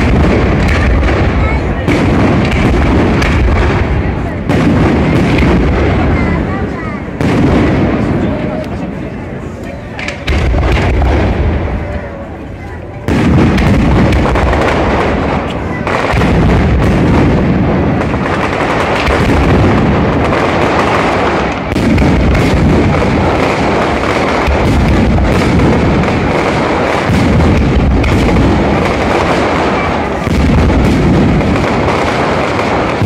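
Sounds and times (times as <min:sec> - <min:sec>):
firework shells bursting: 0:00.0 - 0:06.1, 0:13.0 - 0:33.0.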